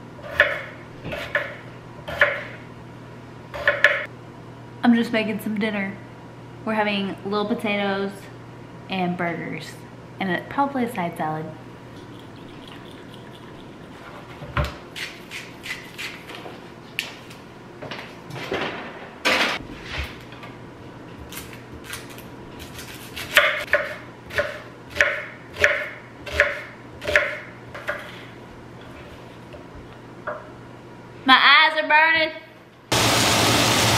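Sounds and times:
knife chopping on wooden board: 0.3 - 2.5, 3.6 - 4.1, 23.2 - 28.1.

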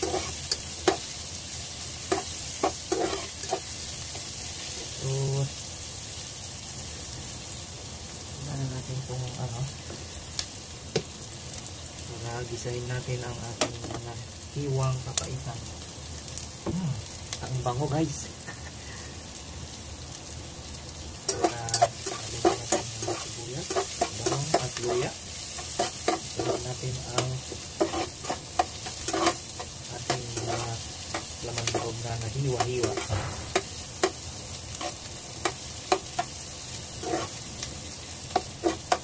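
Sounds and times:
utensil scraping pan: 0.0 - 1.0, 2.1 - 3.7, 21.3 - 36.3, 37.0 - 37.4, 38.3 - 39.0
food sizzling in oil: 0.0 - 39.0.

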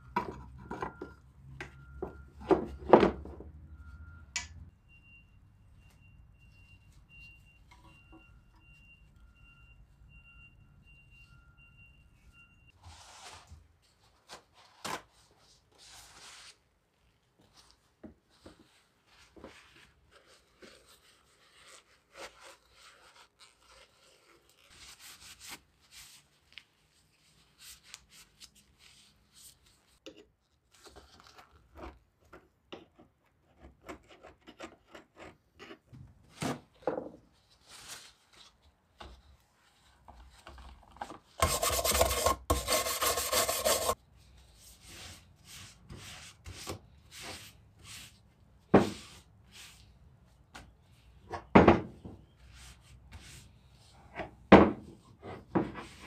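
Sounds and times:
hand scraping and rubbing metal: 41.4 - 48.2.

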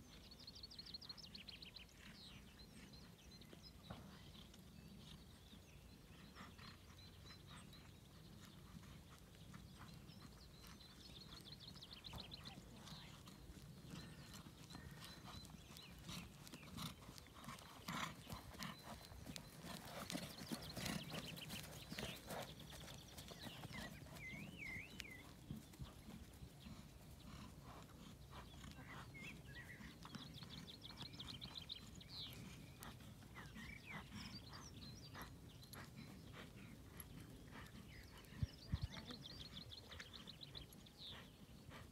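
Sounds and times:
horse hoofbeats on grass: 9.4 - 27.5.

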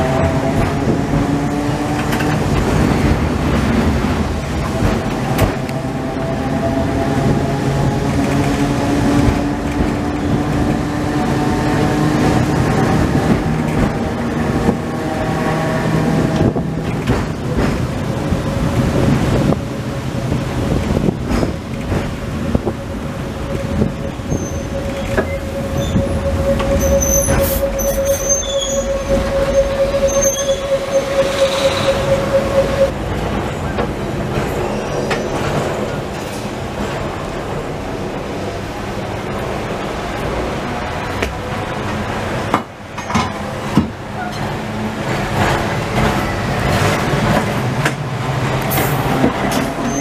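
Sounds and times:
tram motor hum: 0.0 - 50.0
high wheel squeals: 23.4 - 33.7, 34.4 - 35.9, 49.6 - 50.0
single-pitched whine: 23.8 - 33.0.

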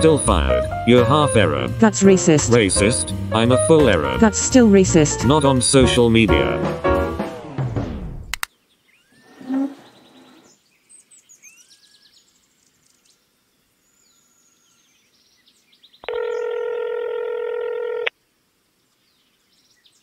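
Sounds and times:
telephone ringback tone: 16.1 - 18.1.

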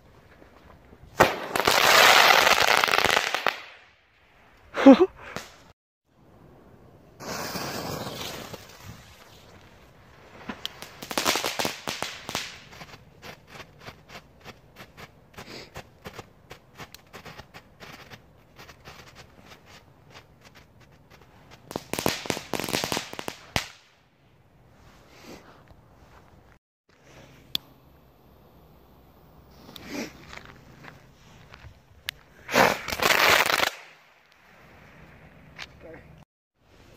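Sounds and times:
firework crackling snaps: 1.2 - 3.9, 7.2 - 24.0, 32.1 - 34.5
firework hissing: 7.2 - 9.5.

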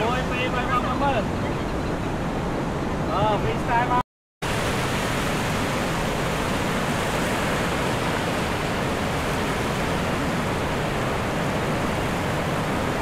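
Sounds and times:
surf washing up beach: 0.0 - 13.0.

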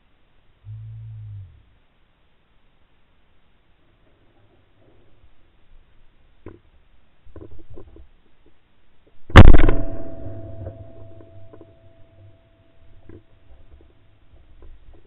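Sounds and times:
shotgun blast: 9.3 - 11.5.

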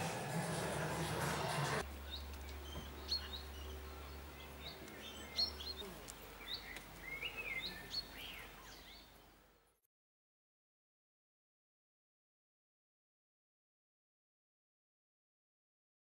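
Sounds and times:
indoor background noise: 0.0 - 9.8
small birds chirping: 1.8 - 9.5.

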